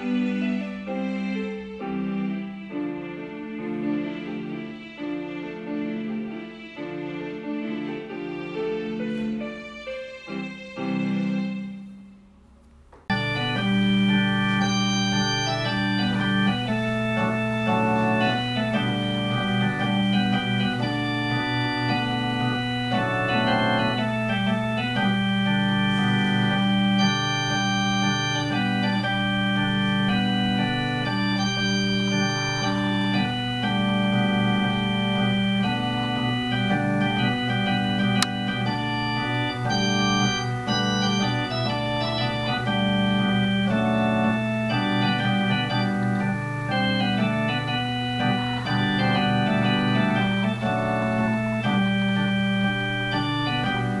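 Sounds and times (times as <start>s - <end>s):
electronic keyboard music: 13.0s - 54.0s.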